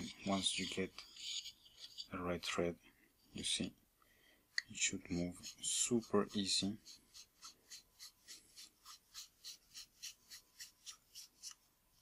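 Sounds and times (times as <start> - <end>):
metal lens rim rasping: 0.0 - 2.2.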